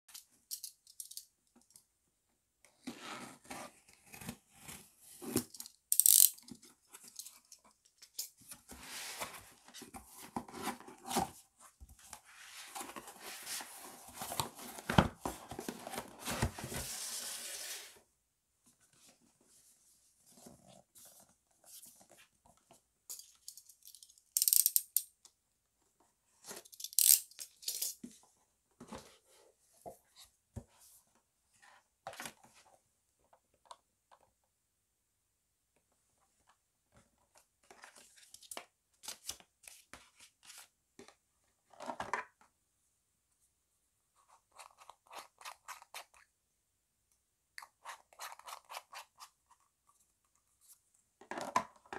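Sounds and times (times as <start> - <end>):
cardboard rustling and scraping: 8.4 - 18.0.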